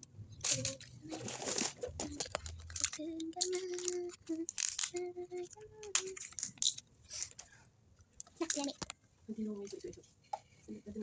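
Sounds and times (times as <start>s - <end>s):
plastic hangers clattering: 0.4s - 7.4s, 8.4s - 8.9s
paper rustling and tearing: 1.0s - 3.0s.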